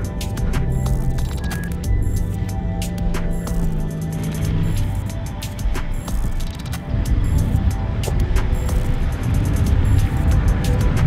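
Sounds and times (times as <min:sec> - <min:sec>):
background music with percussion: 0:00.0 - 0:11.0.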